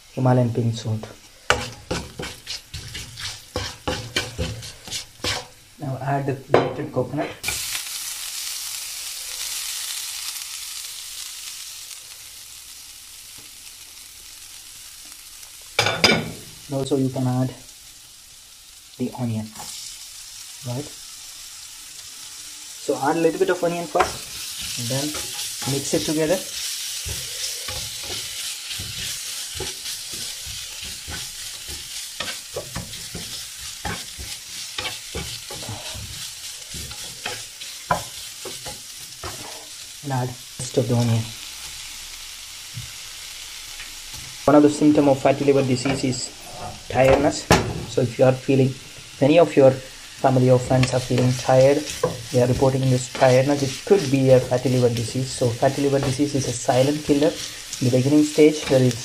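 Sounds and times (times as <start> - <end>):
oil sizzling in a frying pan: 0.0 - 6.6, 7.4 - 59.0
wooden spatula scraping a pan: 1.5 - 5.6, 23.9 - 39.8, 50.5 - 59.0.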